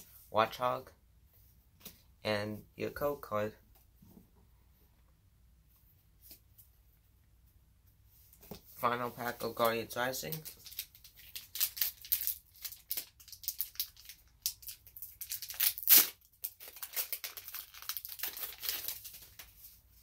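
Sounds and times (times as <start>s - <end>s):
foil wrapper tearing and crinkling: 10.4s - 19.5s.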